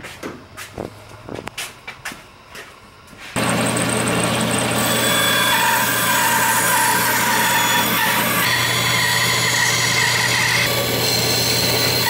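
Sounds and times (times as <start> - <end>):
band saw running: 3.4 - 12.0
saw blade whine cutting wood: 3.4 - 12.0.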